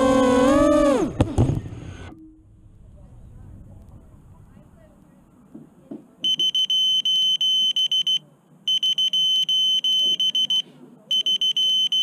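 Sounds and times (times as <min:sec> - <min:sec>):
rapid electronic alarm beeps: 0:06.2 - 0:12.0.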